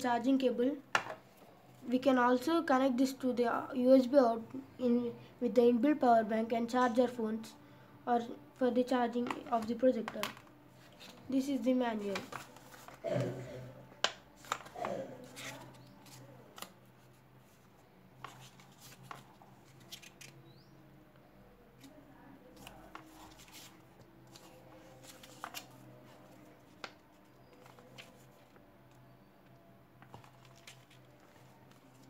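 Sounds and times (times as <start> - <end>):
paper pages turning: 9.2 - 11.2, 12.0 - 13.0, 14.0 - 20.4, 22.6 - 28.6, 30.0 - 32.0.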